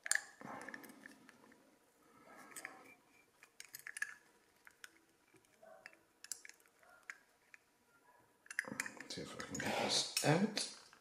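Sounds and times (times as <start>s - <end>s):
lock cylinder clicking: 8.4s - 9.1s.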